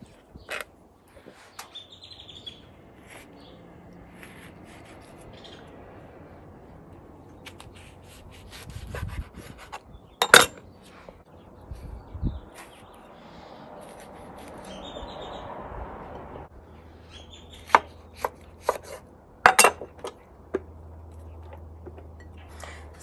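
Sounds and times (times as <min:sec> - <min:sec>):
birds chirping: 0:00.0 - 0:05.8, 0:09.8 - 0:18.4.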